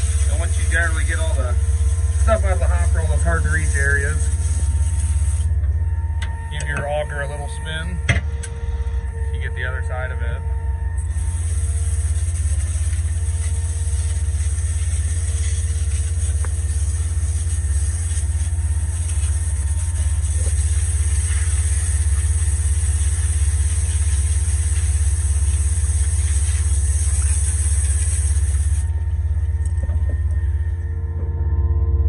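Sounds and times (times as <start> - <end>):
water hose spraying: 0.0 - 5.6, 11.0 - 30.4
pump engine rumbling: 0.0 - 32.0.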